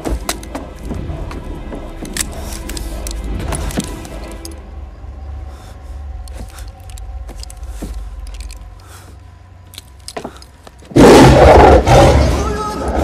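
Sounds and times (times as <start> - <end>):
lion roar: 10.9 - 13.0.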